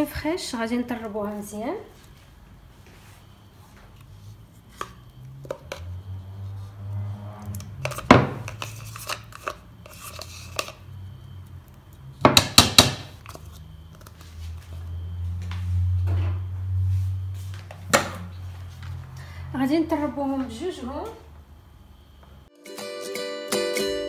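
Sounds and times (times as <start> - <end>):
spoon scraping plastic tub: 7.4 - 10.8.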